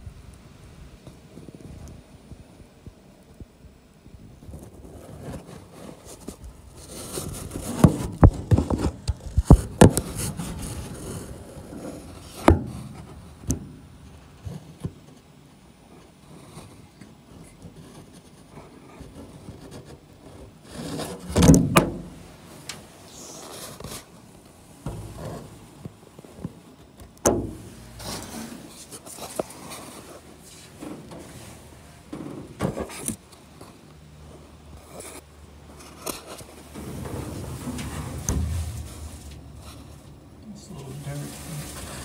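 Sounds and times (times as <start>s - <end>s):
knocks and scraping inside metal wing: 4.4s - 13.8s, 24.8s - 26.6s, 27.2s - 33.1s, 35.8s - 40.3s.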